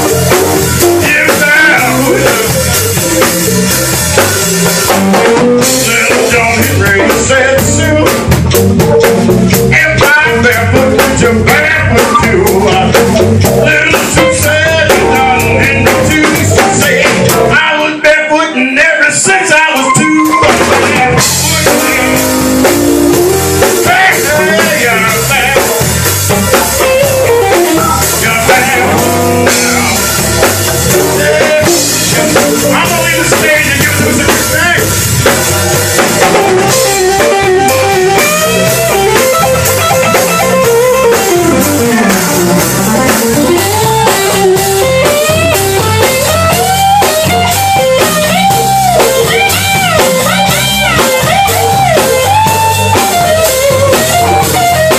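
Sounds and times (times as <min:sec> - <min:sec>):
guitar lead with bending notes: 0:00.0 - 0:17.6, 0:19.2 - 0:54.9
blues band playing live: 0:00.0 - 0:54.9.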